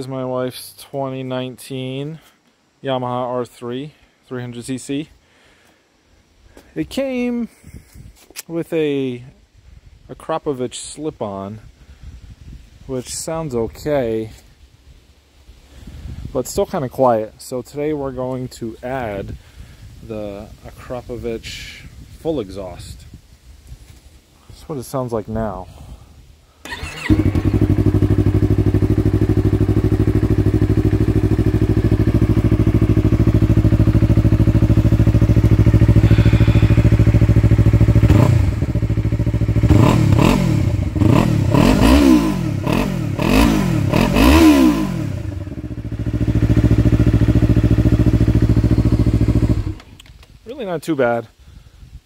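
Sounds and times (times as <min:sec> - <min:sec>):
motorcycle engine revving: 0:26.6 - 0:49.9
motorcycle engine idling: 0:26.7 - 0:50.0.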